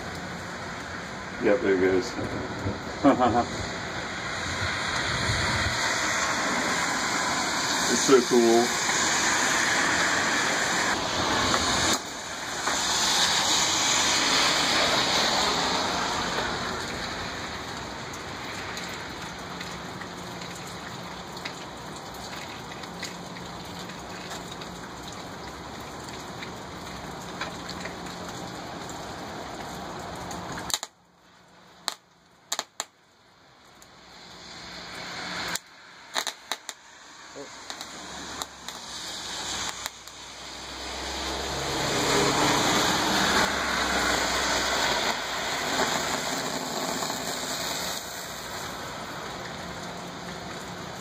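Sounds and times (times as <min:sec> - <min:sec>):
wire sizzling and hissing: 0:34.1 - 0:41.3, 0:42.1 - 0:48.8
sharp clicks: 0:36.2 - 0:36.8.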